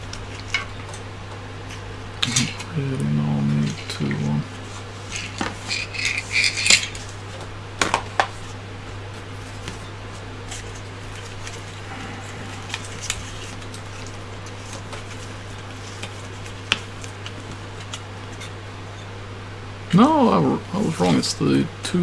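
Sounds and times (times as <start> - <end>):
steady low hum: 0.0 - 22.0
plastic parts clattering: 5.1 - 7.1.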